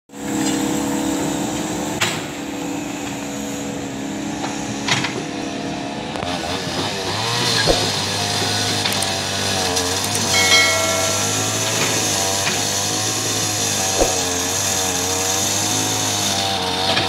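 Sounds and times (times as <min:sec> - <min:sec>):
sharp knocks: 0:10.2 - 0:12.5.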